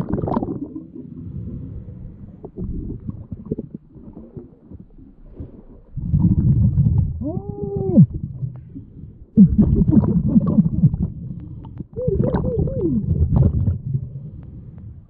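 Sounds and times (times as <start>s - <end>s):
underwater exhaled bubbles rumbling: 0.0s - 15.0s
muffled voice through regulator: 7.2s - 8.1s, 12.0s - 13.1s.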